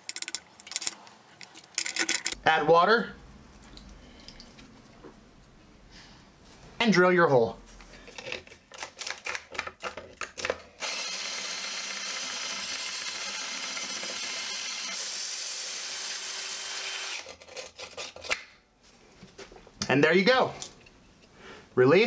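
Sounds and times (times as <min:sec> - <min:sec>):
drill hole saw grinding through tile: 0:10.8 - 0:17.3.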